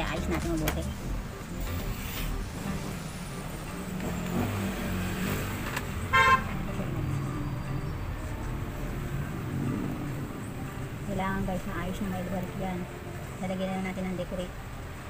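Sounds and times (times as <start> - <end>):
vehicle horn toot: 6.0 - 6.9.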